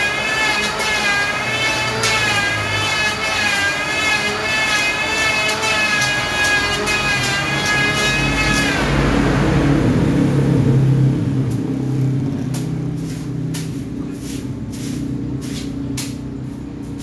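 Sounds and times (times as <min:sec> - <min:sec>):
electric planer motor winding down: 0:00.0 - 0:11.0
low hum: 0:04.1 - 0:15.4
hand sweeping wood shavings: 0:13.0 - 0:15.8.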